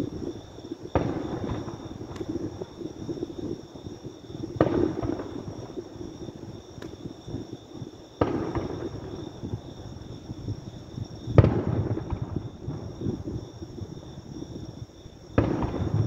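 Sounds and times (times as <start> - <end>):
firework shells booming: 0.9 - 2.6, 4.6 - 5.8, 8.2 - 9.6, 11.3 - 12.9, 15.4 - 16.0.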